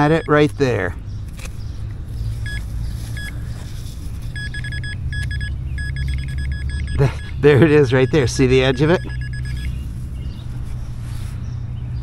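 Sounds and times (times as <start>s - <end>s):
pinpointer beeping: 0.0s - 0.6s, 4.4s - 9.8s.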